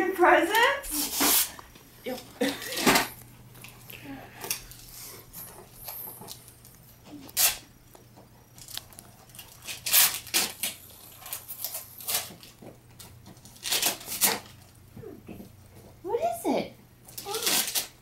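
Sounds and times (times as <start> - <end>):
wrapping paper rustling and tearing: 0.9 - 3.2, 7.3 - 7.7, 8.6 - 14.7, 17.1 - 18.0.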